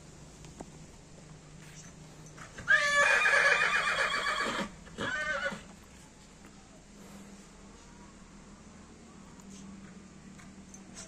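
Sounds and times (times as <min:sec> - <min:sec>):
horse whinnying: 0:02.6 - 0:05.7.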